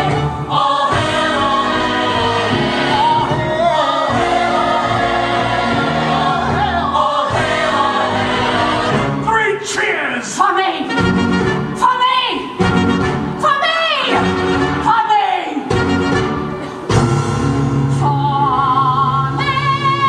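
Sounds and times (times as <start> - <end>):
ensemble singing in chorus: 0.0 - 9.3.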